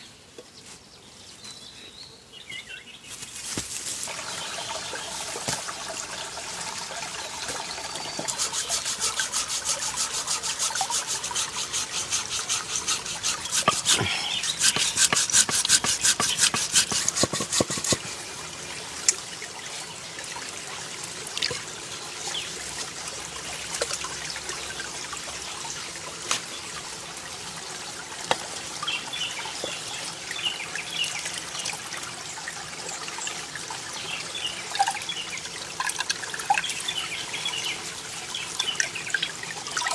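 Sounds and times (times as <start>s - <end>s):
stream trickling over rocks: 3.4s - 39.9s
rapid even strokes: 8.0s - 18.1s.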